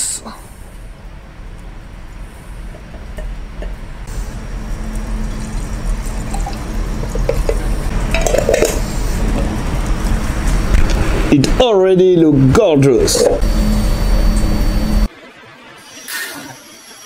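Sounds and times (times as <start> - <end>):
liquid pouring into glass jar: 4.9 - 8.8.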